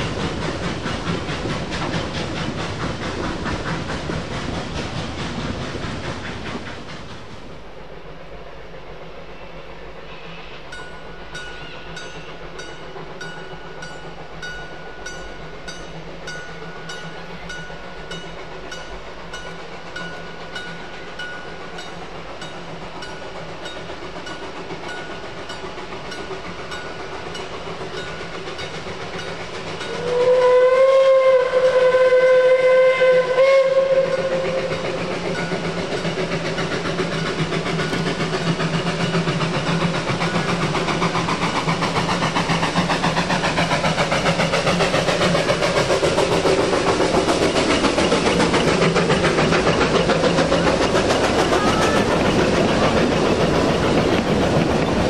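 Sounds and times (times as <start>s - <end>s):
steam locomotive exhaust beats: 0.0s - 55.0s
steam locomotive chime whistle: 9.2s - 25.6s, 26.2s - 36.1s.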